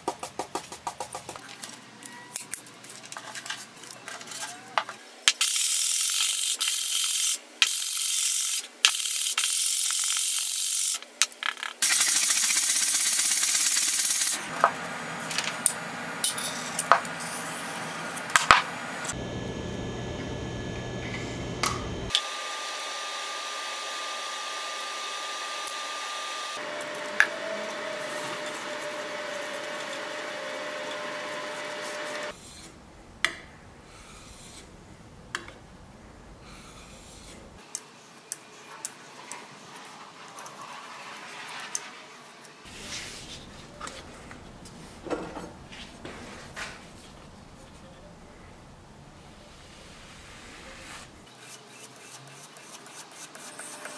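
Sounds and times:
plane rubbing on sandpaper: 27.3 - 32.7, 42.6 - 43.8, 49.8 - 53.9.

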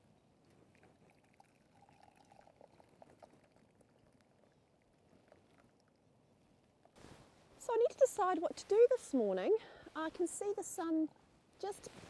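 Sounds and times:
coffee trickling into metal mug: 0.7 - 6.0.

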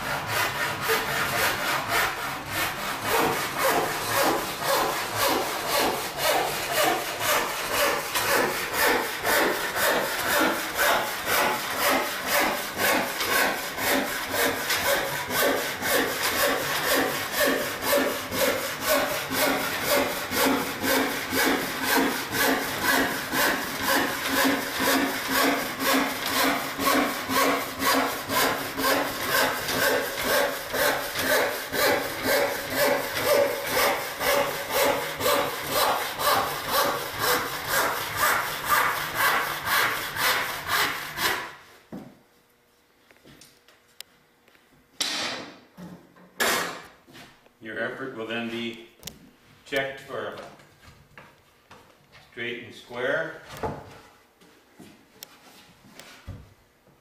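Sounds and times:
hand saw ripping wood: 0.0 - 41.6.

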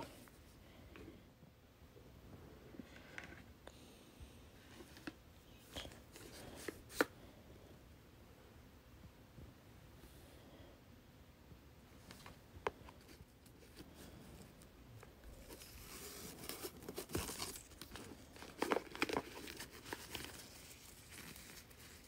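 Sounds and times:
satin ribbon rustling: 12.9 - 22.0.

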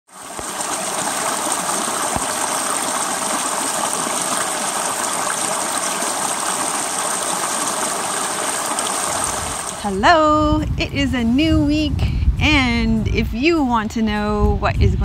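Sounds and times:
stream rushing over rocks: 0.1 - 9.9.

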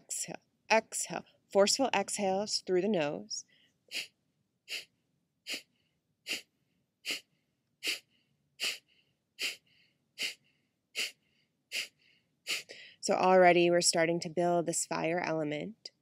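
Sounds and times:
forceful nasal exhales: 3.9 - 4.1, 4.7 - 4.9, 5.5 - 5.7, 6.3 - 10.4, 11.0 - 13.0
short faint inhale: 11.8 - 13.0.

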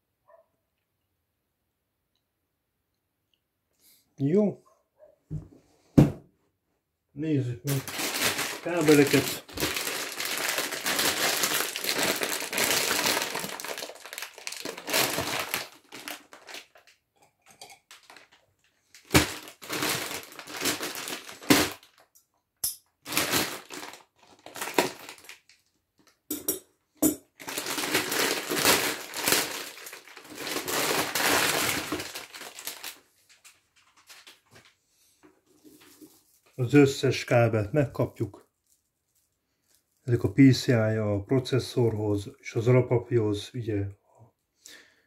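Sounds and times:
plastic packaging crinkling: 7.6 - 17.0, 17.6 - 22.2, 23.0 - 26.2, 27.3 - 34.8, 38.3 - 40.1.

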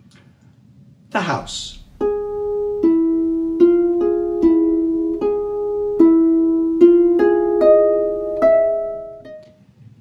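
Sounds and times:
slow plucked-string music: 1.4 - 9.5.

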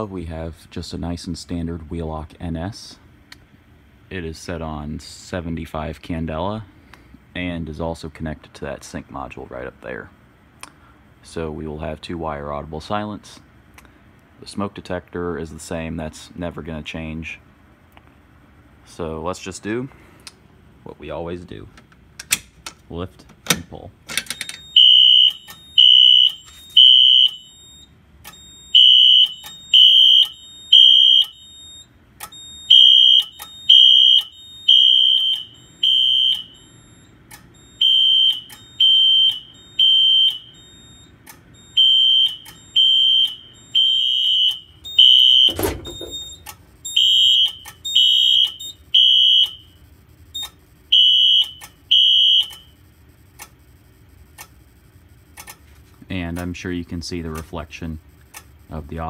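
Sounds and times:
fire alarm horn beeping: 24.4 - 52.8.

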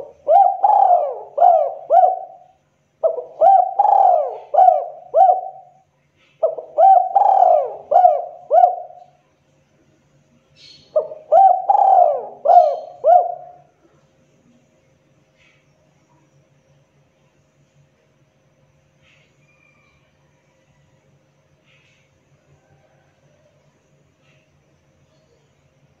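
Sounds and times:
dove cooing: 0.0 - 9.2, 10.9 - 13.7.

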